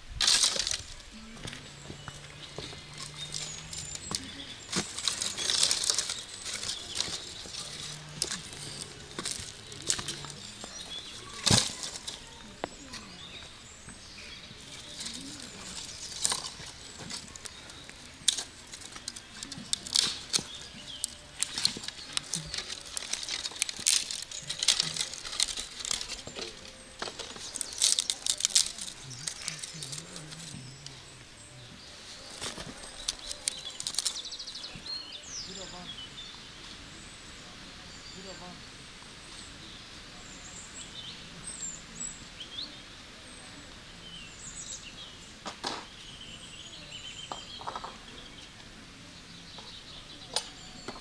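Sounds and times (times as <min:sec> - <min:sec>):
light rustling: 0:00.2 - 0:14.0, 0:14.6 - 0:34.9.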